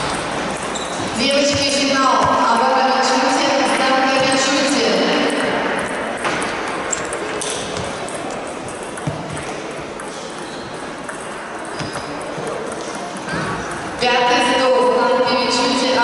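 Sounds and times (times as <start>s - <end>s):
background chatter: 4.1s - 14.2s
table tennis balls clicking: 5.0s - 14.0s.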